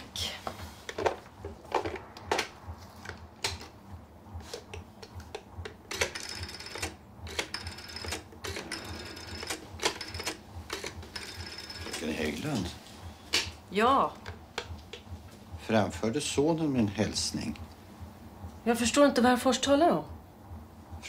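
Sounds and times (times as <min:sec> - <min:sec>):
rotary dial clicking and whirring: 0:04.5 - 0:12.6.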